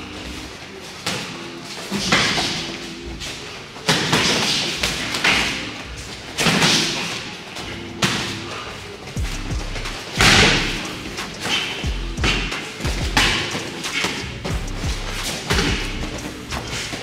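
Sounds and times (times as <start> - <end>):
strikes landing with thuds: 10.2 - 10.8.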